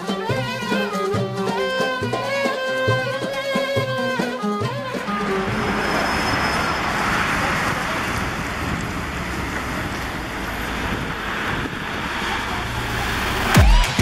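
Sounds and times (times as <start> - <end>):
bus driving past: 4.8 - 14.0
wind buffeting microphone: 5.2 - 13.6.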